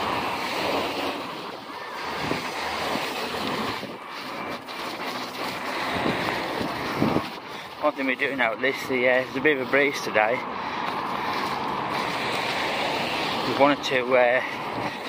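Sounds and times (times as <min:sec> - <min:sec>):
busy road traffic: 0:00.0 - 0:15.0
wind buffeting microphone: 0:01.4 - 0:04.6, 0:05.4 - 0:08.3.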